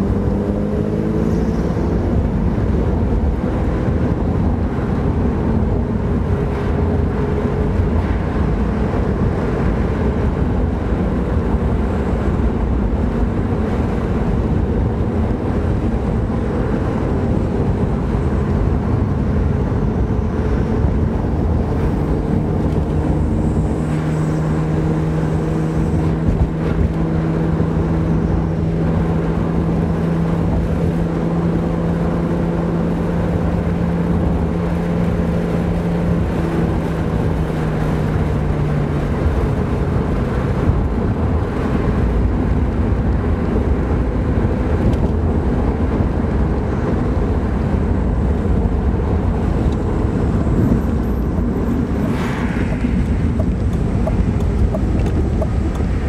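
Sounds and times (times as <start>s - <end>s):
car engine while driving: 0.0s - 56.0s
tyre and road rumble: 0.0s - 56.0s.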